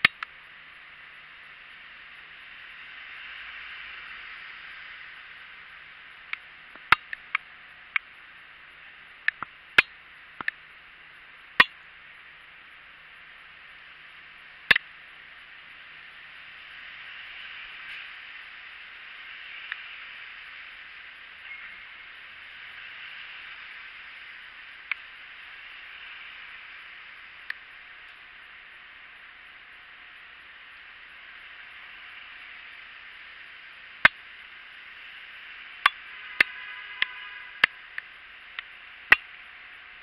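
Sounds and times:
traffic hiss on wet street: 0.2s - 40.0s.

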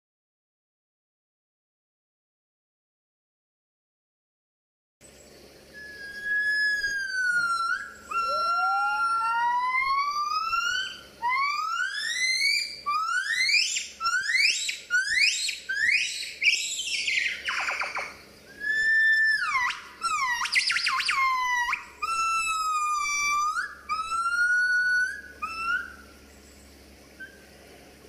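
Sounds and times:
gibbon calling: 5.8s - 26.5s, 27.1s - 27.7s.

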